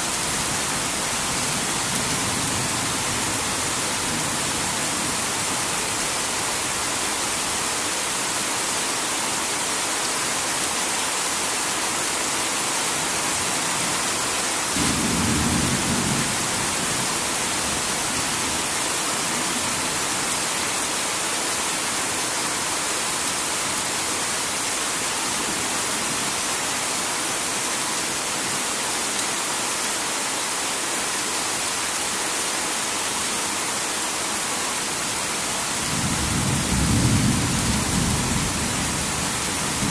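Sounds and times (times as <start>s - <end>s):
heavy rain falling: 0.0s - 39.9s
low rumble of thunder: 14.8s - 17.1s, 35.8s - 39.9s.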